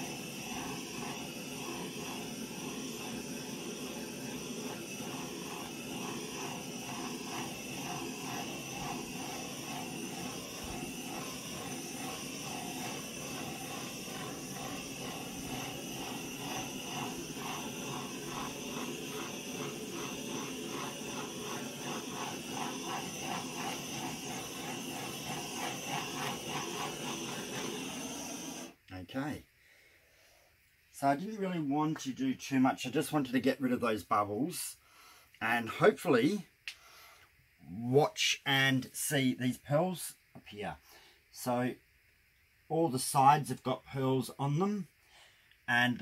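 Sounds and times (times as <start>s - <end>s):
soft rhythmic pulsing: 0.0s - 28.7s
butane torch hissing: 0.0s - 41.8s.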